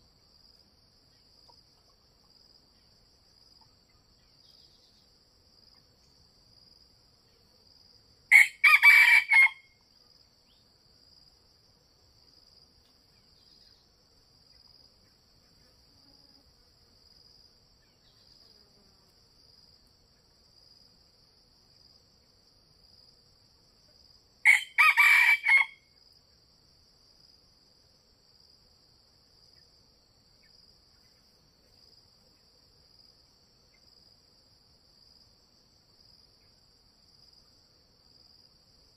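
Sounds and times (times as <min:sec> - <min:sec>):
faint high insect trill: 0:00.0 - 0:38.9
rooster crowing: 0:08.3 - 0:09.8, 0:24.4 - 0:25.9.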